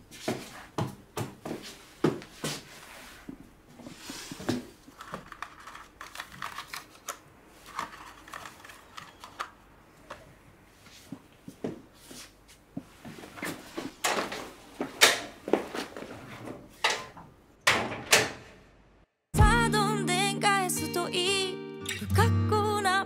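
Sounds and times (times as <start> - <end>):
calendar pages flipping: 4.1 - 10.3.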